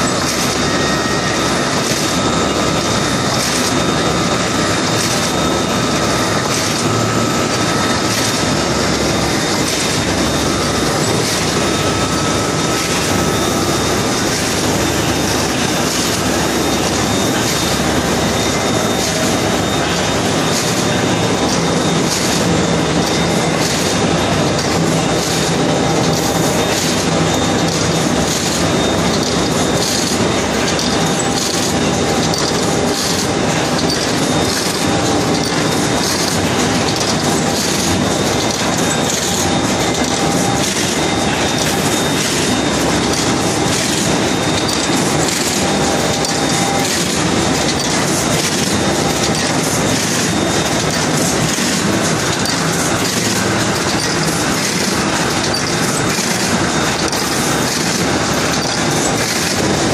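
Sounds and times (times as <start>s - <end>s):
faint machine whine: 0.0s - 59.9s
machine clatter of rapid clicks: 0.0s - 59.9s.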